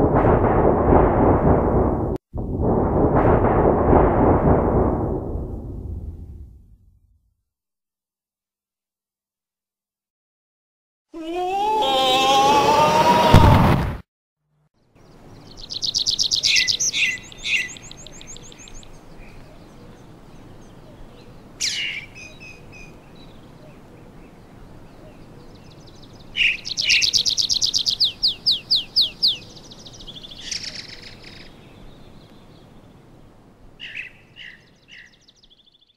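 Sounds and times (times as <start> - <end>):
songbirds trilling and chirping: 14.8 - 35.9
faint steady hiss: 15.0 - 26.8.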